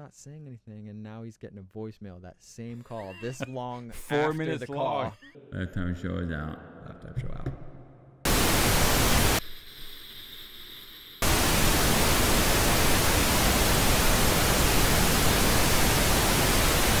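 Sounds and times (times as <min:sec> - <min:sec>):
television static hiss: 0:08.3 - 0:09.4, 0:11.2 - 0:17.0.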